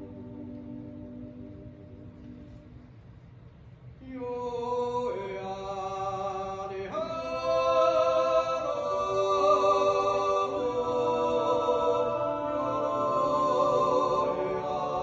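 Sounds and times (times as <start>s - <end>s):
men yodeling in harmony: 4.2s - 15.0s.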